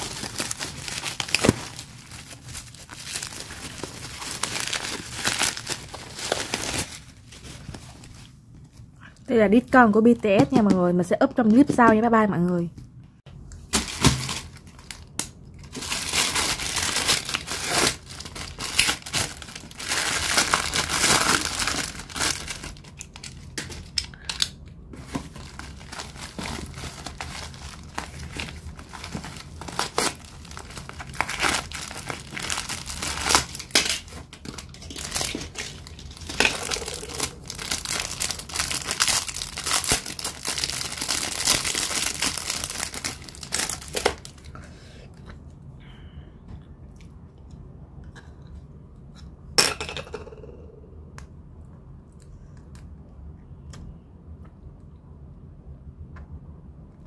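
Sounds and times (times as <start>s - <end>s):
plastic bags crinkling and tearing: 0.0s - 8.3s, 13.7s - 44.5s.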